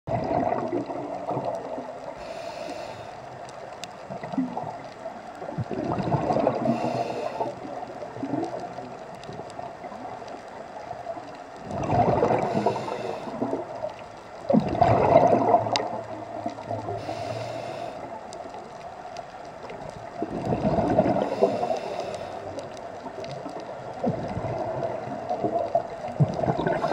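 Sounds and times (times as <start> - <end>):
exhaust bubbles gurgling: 0.1 - 2.2, 5.4 - 10.2, 11.6 - 18.2, 20.1 - 21.9, 23.0 - 26.9
regulator inhale hiss: 2.1 - 3.6, 6.6 - 7.8, 12.4 - 13.8, 16.8 - 18.3, 21.1 - 22.8, 26.6 - 26.9.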